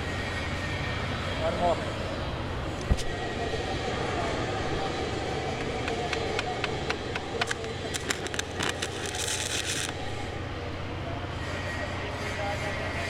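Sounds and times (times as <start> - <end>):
steady background hum: 0.0 - 13.0
welding arc crackling: 6.3 - 10.2.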